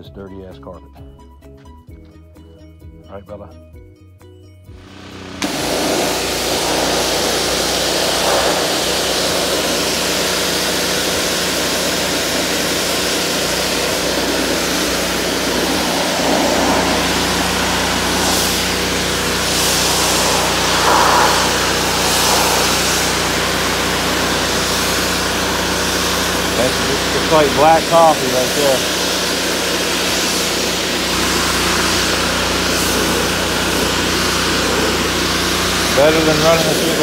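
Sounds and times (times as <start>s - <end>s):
low motor hum: 4.8s - 27.4s
pressure washer spray hissing: 5.0s - 37.0s.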